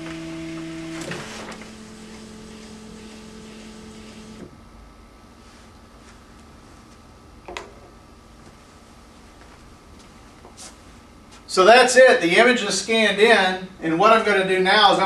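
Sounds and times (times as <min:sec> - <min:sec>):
scanner motor humming: 0:00.0 - 0:04.6.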